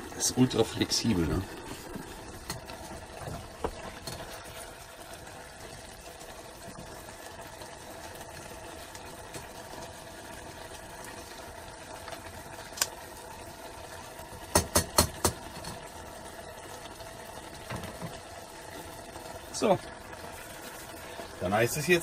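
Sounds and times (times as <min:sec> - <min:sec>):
stew simmering hiss: 0:00.0 - 0:22.0
utensil clicks on pot: 0:12.7 - 0:13.0, 0:14.5 - 0:15.7.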